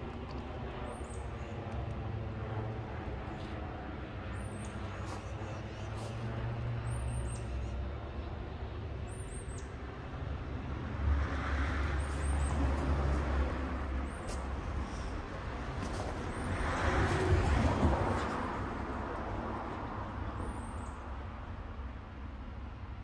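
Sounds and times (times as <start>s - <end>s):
steady low rumble: 11.7s - 19.4s.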